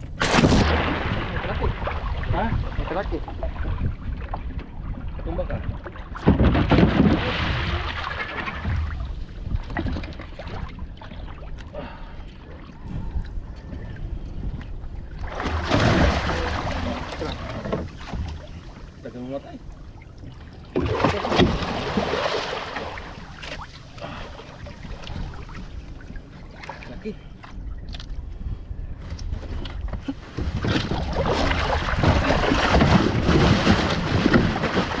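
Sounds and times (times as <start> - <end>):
low rumble: 0.0 - 35.0
water splashing against boat: 0.0 - 35.0
fish thrashing and splashing: 15.2 - 18.4, 30.4 - 35.0.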